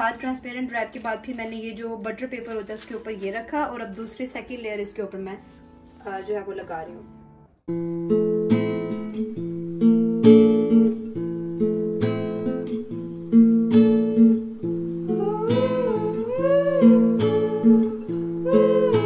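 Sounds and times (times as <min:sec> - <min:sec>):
acoustic guitar strumming chords: 0:07.7 - 0:19.0
gliding melody line: 0:14.2 - 0:19.0.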